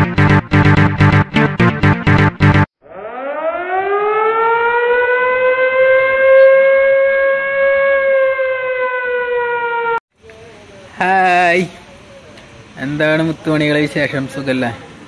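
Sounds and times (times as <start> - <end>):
air-raid siren wailing: 2.8 - 10.0.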